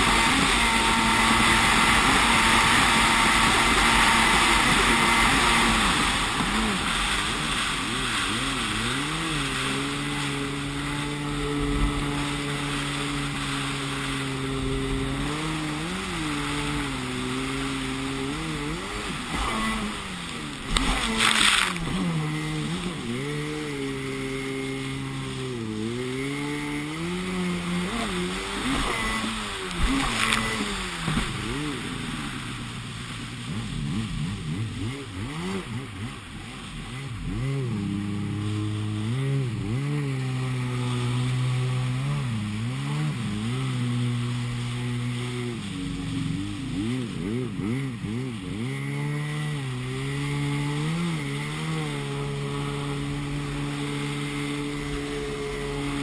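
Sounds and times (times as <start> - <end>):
water spray splash: 0.0 - 23.3, 27.6 - 34.1
jet ski engine revving: 0.0 - 56.0.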